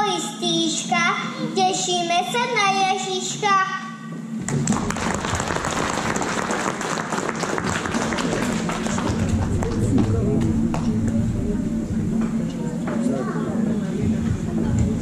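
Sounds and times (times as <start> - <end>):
applause: 4.4 - 9.9.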